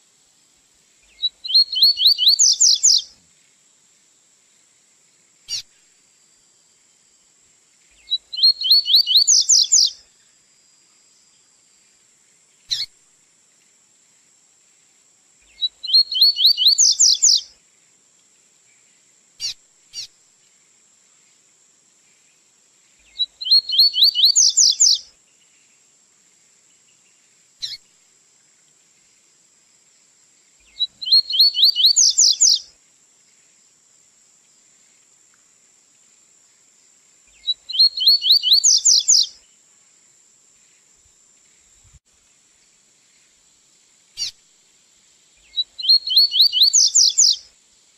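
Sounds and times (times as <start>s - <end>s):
bird trilled song: 1.1s - 3.0s, 8.0s - 9.9s, 15.5s - 17.4s, 23.1s - 25.0s, 30.7s - 32.6s, 37.4s - 39.3s, 45.5s - 47.4s.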